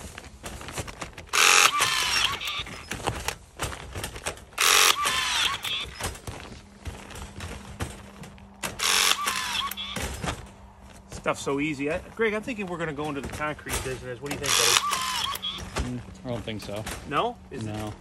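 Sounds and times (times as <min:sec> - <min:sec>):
rebar tying tool whirring: 0:00.0 - 0:10.5, 0:13.7 - 0:16.0.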